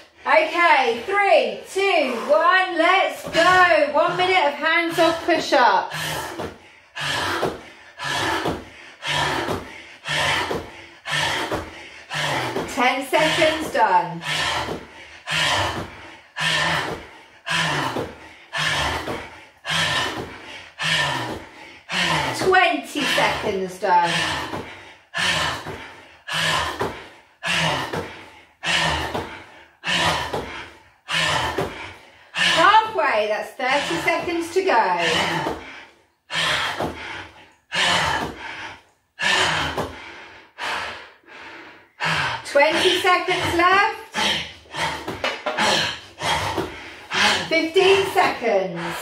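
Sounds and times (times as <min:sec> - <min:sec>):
hard exhaling breaths: 0:00.0 - 0:49.0
person exhaling with grunts: 0:35.0 - 0:49.0.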